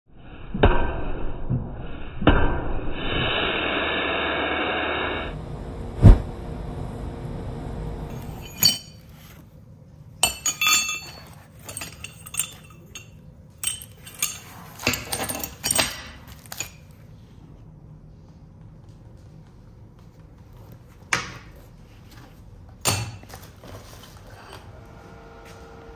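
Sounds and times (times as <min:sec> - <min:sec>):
steady rushing noise: 0:03.0 - 0:08.1
steel bearing races clinking: 0:08.1 - 0:09.2, 0:10.2 - 0:16.9.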